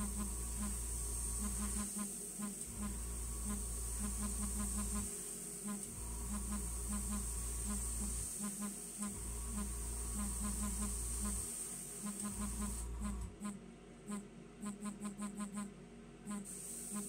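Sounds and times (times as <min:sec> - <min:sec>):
compressor and fan buzzing: 0:00.0 - 0:17.0
high hiss of air: 0:16.5 - 0:17.0.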